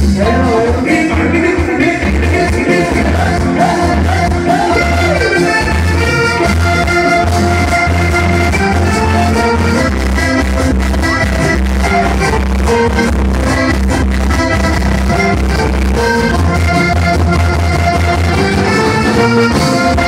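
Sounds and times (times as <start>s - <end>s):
accordion: 0.0s - 20.0s
live band playing: 0.0s - 20.0s.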